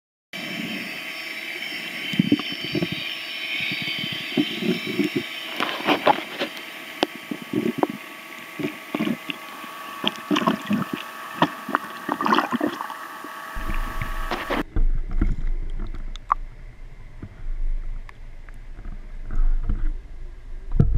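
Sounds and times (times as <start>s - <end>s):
boat motor whine underwater: 0.4s - 20.9s
knocks and clicks underwater: 3.6s - 8.0s, 8.6s - 9.4s, 10.0s - 12.9s, 13.6s - 16.5s
low underwater rumble: 13.6s - 20.9s.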